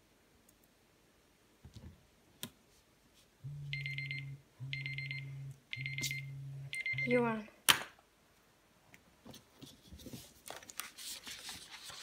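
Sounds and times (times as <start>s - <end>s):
timer alarm ringtone: 3.5s - 7.3s.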